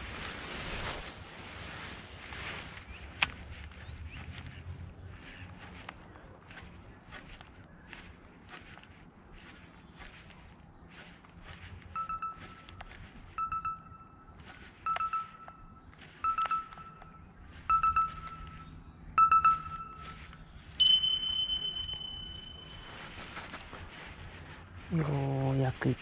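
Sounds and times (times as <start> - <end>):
bright chime: 20.8 - 23.6.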